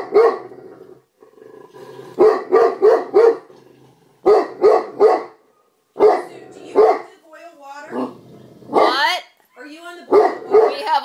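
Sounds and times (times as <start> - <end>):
dog barking: 0.0 - 0.5, 2.2 - 3.5, 4.2 - 7.1, 8.7 - 9.1, 10.1 - 11.0.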